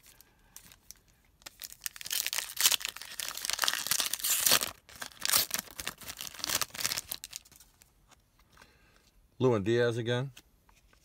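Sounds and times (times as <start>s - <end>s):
foil wrapper crinkling: 0.0s - 7.8s.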